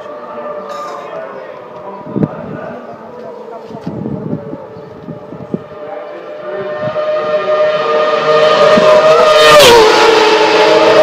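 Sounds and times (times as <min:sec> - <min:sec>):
racing motorcycle passing: 0:00.0 - 0:02.0, 0:04.6 - 0:11.0
second motorcycle: 0:04.8 - 0:11.0.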